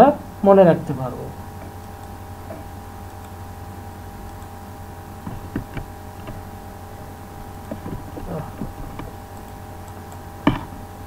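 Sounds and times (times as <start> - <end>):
low mains hum and hiss: 0.0 - 11.0
computer mouse clicks: 1.6 - 3.4, 4.2 - 4.6, 5.2 - 6.4, 7.6 - 10.6.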